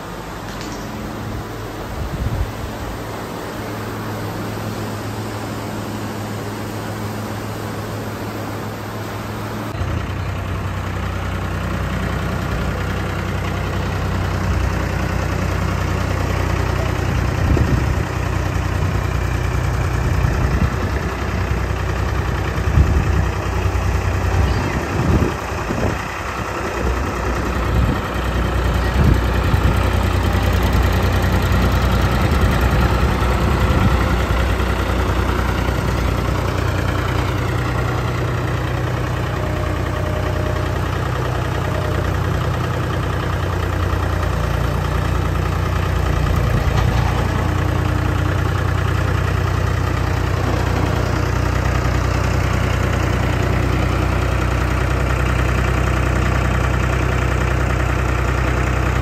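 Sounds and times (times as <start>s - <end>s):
engine idling with deep hum: 0.0s - 59.0s.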